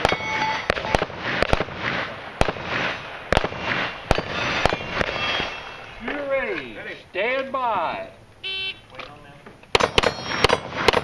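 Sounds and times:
metallic ring from steel targets: 0.0s - 1.0s, 4.1s - 6.1s, 9.8s - 10.7s
handgun shots: 9.7s - 11.0s.

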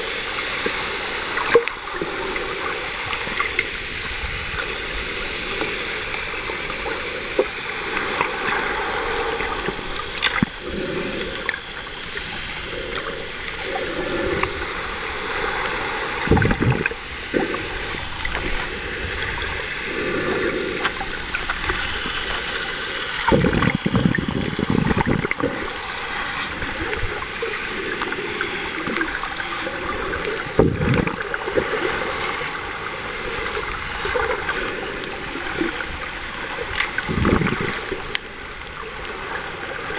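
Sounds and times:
water sloshing and gurgling underwater: 0.0s - 39.9s.

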